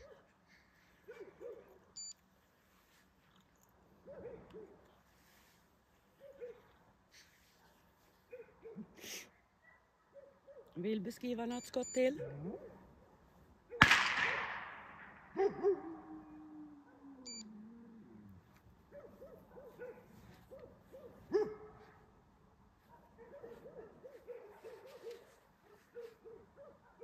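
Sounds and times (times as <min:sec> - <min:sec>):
gunshot echoing: 0:13.8 - 0:15.4.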